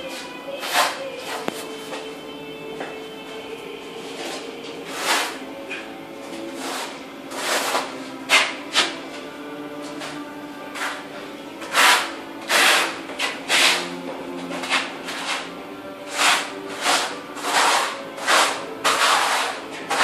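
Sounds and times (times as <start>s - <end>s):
trowel scraping adhesive on concrete: 4.3s - 5.8s, 6.5s - 9.0s, 11.6s - 14.0s, 14.6s - 15.5s, 16.1s - 20.0s.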